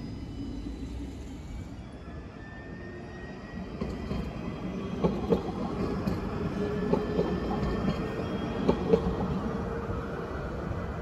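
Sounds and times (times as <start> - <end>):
tram passing with hum: 0.0 - 11.0
wheels clacking on rails: 5.0 - 9.5.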